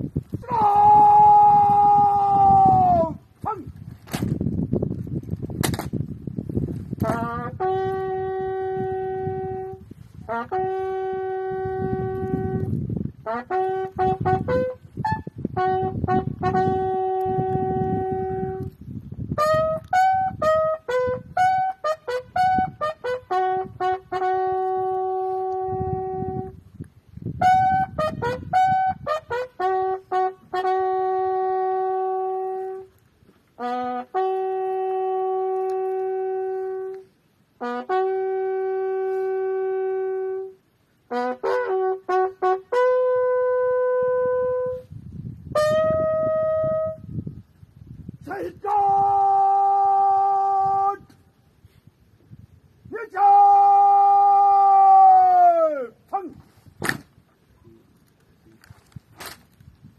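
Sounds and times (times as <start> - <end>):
bugle call: 7.0 - 18.7, 19.4 - 26.5, 27.4 - 44.9, 45.5 - 47.0.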